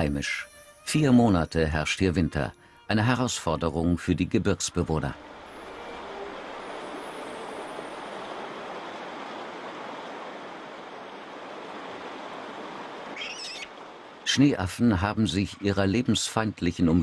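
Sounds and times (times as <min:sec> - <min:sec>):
stream water rushing: 0:03.9 - 0:17.0.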